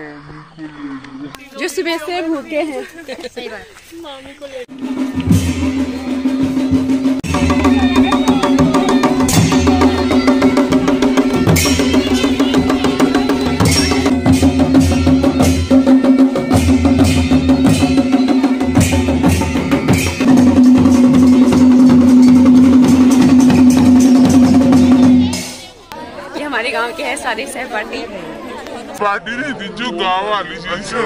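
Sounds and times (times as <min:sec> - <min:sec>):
drums beaten in fast rhythm: 0:04.6 - 0:25.8
cymbals: 0:04.7 - 0:25.8.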